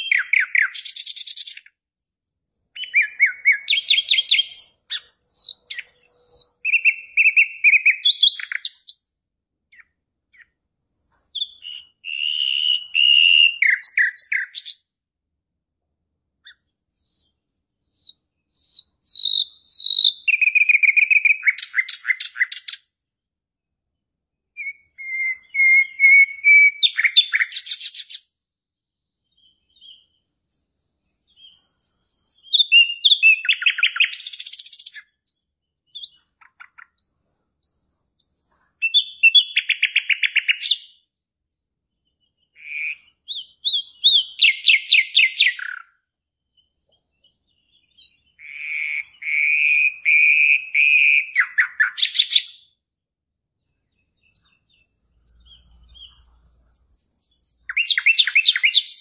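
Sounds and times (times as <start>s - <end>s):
high whistled bird notes: 0.0s - 8.9s, 10.8s - 14.9s, 16.4s - 23.2s, 24.6s - 28.3s, 29.4s - 41.0s, 42.6s - 46.0s, 47.9s - 52.7s, 54.2s - 59.0s
songbird trilling: 0.0s - 9.0s, 9.7s - 14.8s, 16.4s - 23.2s, 24.6s - 28.2s, 29.8s - 40.9s, 42.5s - 45.9s, 54.2s - 59.0s.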